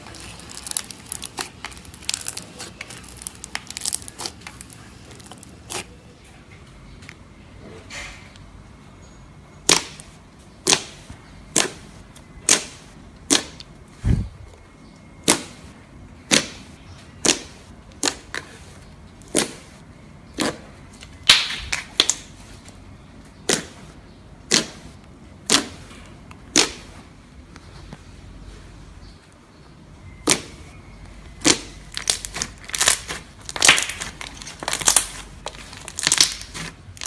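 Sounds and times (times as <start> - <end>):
fingers pressing slime: 9.6 - 13.7, 15.2 - 22.2, 23.4 - 25.9, 26.5 - 26.9, 31.4 - 37.0.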